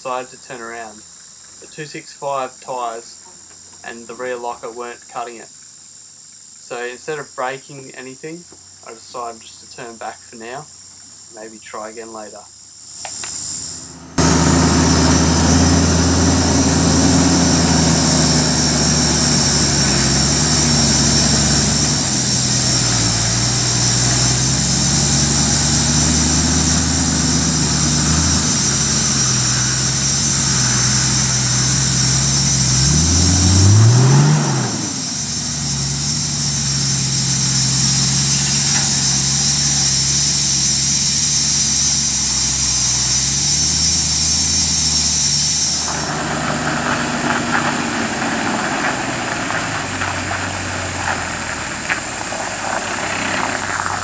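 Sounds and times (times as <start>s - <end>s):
diesel truck engine at low revs: 12.8s - 54.0s.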